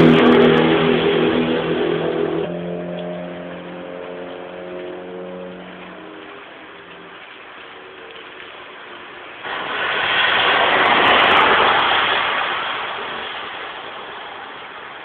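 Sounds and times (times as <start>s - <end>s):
tyres hissing on wet road: 3.6s - 15.0s.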